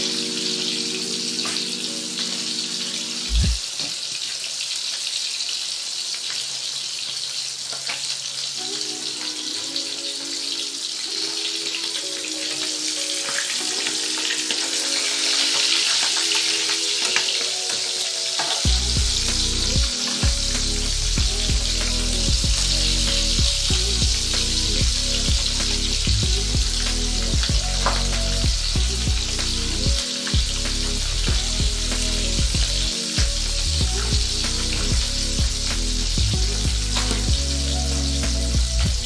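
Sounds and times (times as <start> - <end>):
fish sizzling in hot oil: 0.0 - 39.0.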